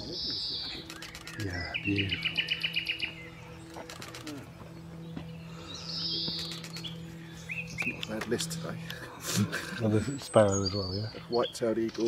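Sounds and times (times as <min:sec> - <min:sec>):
nightingale singing: 0:00.0 - 0:08.7.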